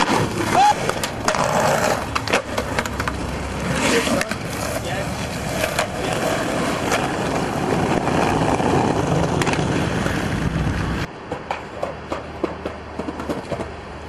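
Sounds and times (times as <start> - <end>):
skateboard wheels rolling on pavement: 0.0 - 14.0.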